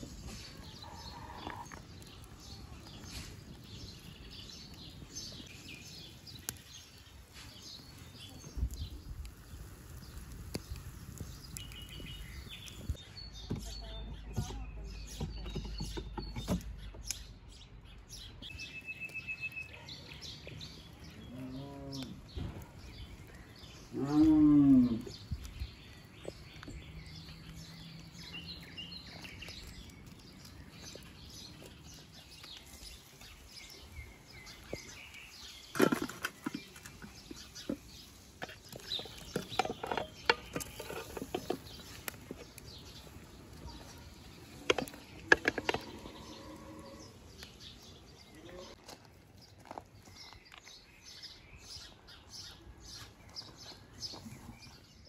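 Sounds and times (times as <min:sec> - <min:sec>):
small birds chirping: 0:00.0 - 0:55.0
cow mooing: 0:23.9 - 0:25.0.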